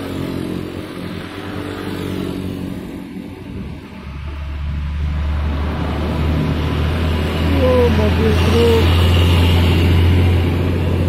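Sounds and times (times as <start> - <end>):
motorcycle engines passing: 0.0 - 11.0
truck diesel engine rumble: 3.5 - 11.0.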